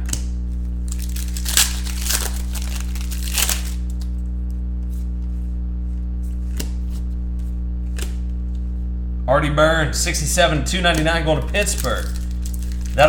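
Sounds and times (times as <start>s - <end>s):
steady low hum: 0.0s - 13.0s
foil wrapper crinkling: 0.8s - 4.3s, 10.8s - 13.0s.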